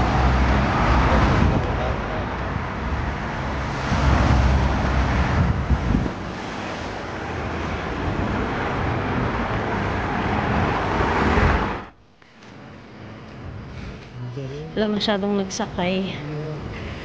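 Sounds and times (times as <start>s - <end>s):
wind buffeting microphone: 0.0s - 11.9s
street traffic: 0.0s - 17.0s.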